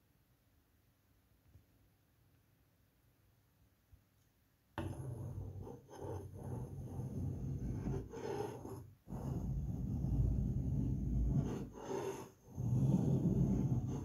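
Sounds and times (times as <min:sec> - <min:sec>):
knife blade scraping paint: 0:04.8 - 0:14.0.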